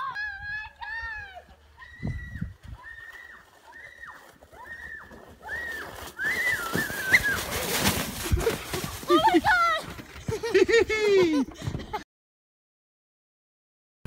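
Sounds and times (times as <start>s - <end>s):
sled bump: 6.0s - 12.0s
sled hissing over snow: 6.3s - 9.6s.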